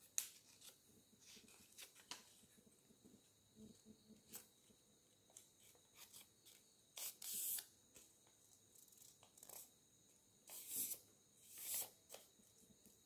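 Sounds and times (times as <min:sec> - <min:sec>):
paper rustling and creasing: 0:00.3 - 0:02.5.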